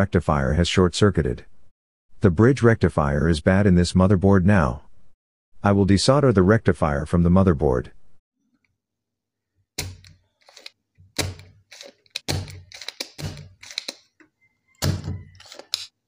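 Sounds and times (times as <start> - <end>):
desoldering pump snapping: 9.8 - 14.2.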